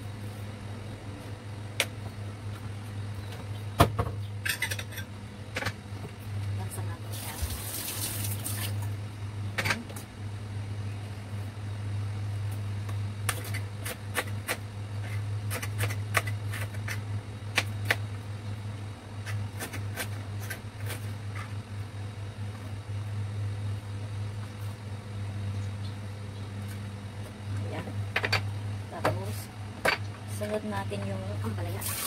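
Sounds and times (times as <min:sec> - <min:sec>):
steady low hum: 0:00.0 - 0:32.0
tap water running: 0:07.1 - 0:08.9, 0:31.8 - 0:32.0.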